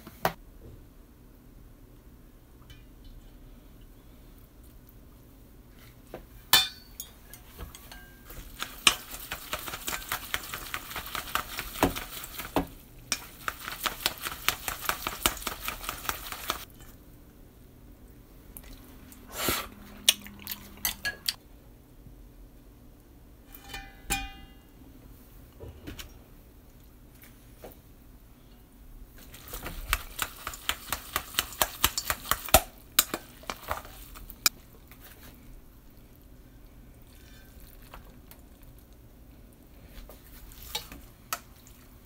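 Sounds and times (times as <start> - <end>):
noodles stirred in metal bowl: 7.0 - 17.0, 29.2 - 35.4, 40.2 - 42.0.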